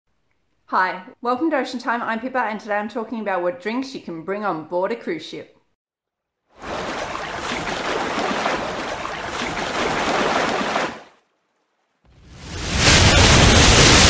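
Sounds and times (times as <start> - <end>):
rushing splashing water: 6.6 - 11.2, 12.2 - 14.0.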